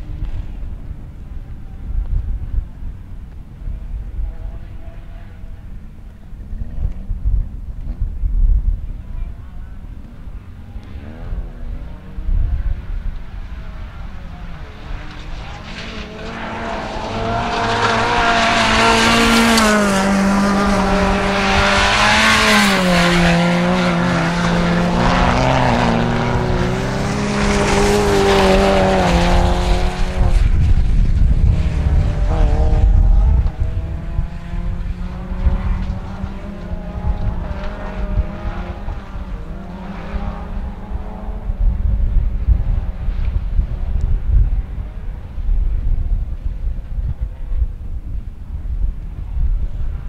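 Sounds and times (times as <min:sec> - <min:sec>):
wind rumble on microphone: 0:00.0 - 0:50.0
car engines revving: 0:09.7 - 0:45.5.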